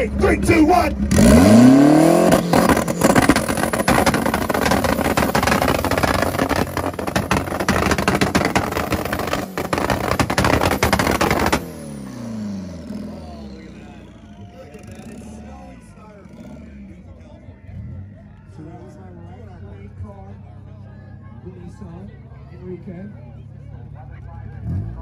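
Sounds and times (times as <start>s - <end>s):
car engine revving: 0.0s - 19.0s, 24.5s - 25.0s
exhaust pops and bangs: 2.2s - 11.8s.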